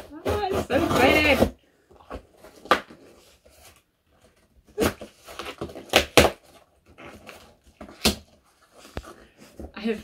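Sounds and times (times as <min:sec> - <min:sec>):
cardboard crackling: 0:00.0 - 0:10.0.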